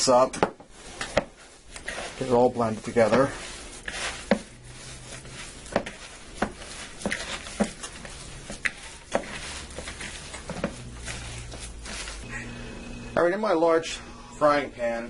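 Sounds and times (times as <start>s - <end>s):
steady low hum: 0.0s - 15.0s
wet squishes of kneaded meat: 0.7s - 12.2s.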